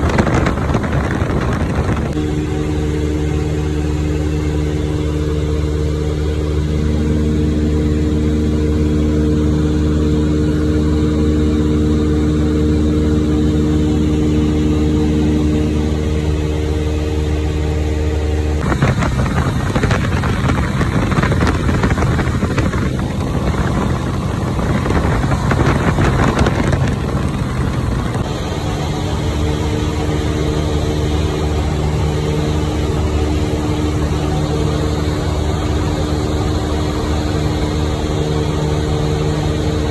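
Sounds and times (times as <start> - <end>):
aircraft engine droning: 0.0 - 39.9
loud rushing noise: 18.6 - 28.5.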